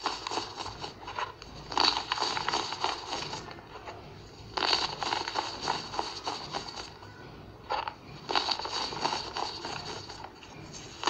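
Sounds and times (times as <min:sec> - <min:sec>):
baking soda crushed in fingers: 0:00.0 - 0:03.5, 0:04.5 - 0:06.8, 0:08.2 - 0:11.0.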